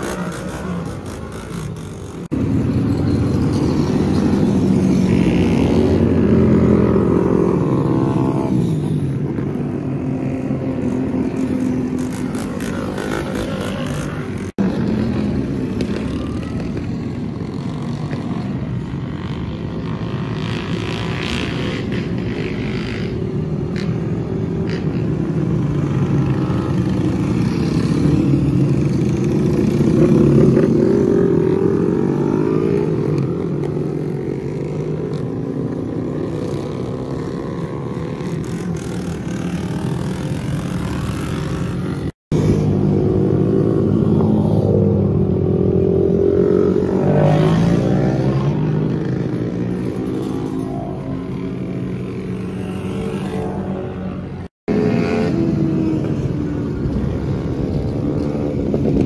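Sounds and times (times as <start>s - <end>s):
minibike engines passing by: 0.0s - 59.0s.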